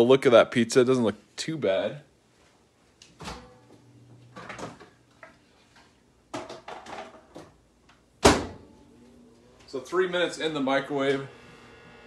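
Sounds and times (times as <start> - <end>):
microwave low steady hum: 2.7 - 6.2, 7.4 - 12.0
microwave door banging shut: 8.2 - 8.6.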